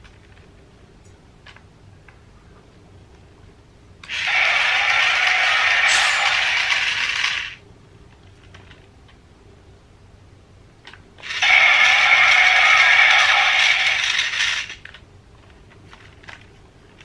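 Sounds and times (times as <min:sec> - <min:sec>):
toy drill motor whirring: 0:04.0 - 0:07.6, 0:11.2 - 0:14.9.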